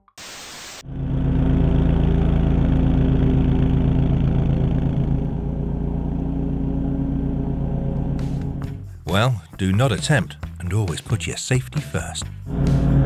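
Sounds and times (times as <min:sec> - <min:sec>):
riding mower engine running: 0:00.8 - 0:10.2.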